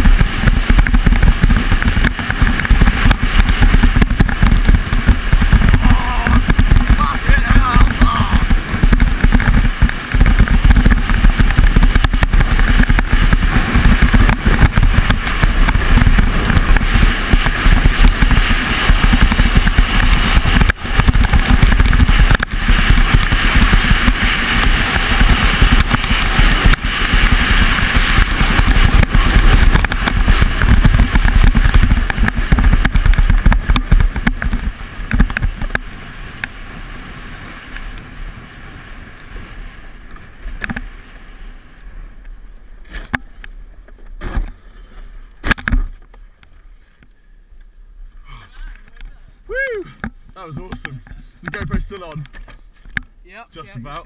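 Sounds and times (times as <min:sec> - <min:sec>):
wind buffeting microphone: 0:00.0 - 0:42.2
sled runners scraping over ice: 0:00.0 - 0:47.2.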